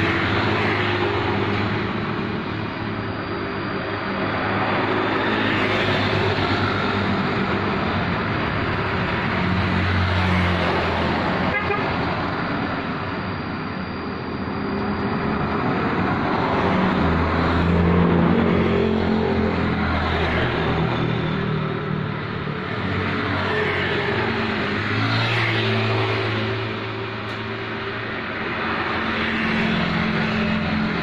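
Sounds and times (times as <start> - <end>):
road noise: 0.0 - 31.0
vehicles passing: 0.0 - 31.0.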